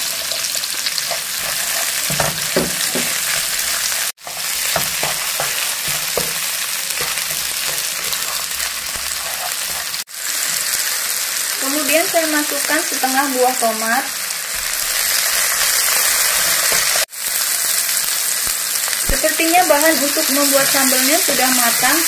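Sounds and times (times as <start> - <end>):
food sizzling in hot oil: 0.0 - 22.0
wooden spatula scraping a pan: 0.3 - 10.6.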